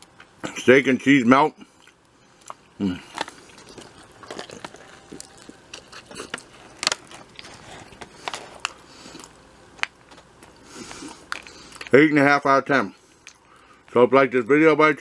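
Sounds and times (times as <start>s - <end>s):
person chewing crunchy sandwich: 1.6s - 12.0s.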